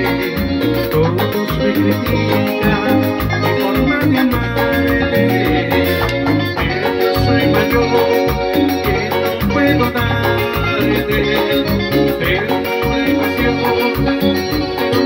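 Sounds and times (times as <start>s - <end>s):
bass: 0.0s - 15.0s
electric guitar: 0.0s - 15.0s
percussion beat: 0.0s - 15.0s.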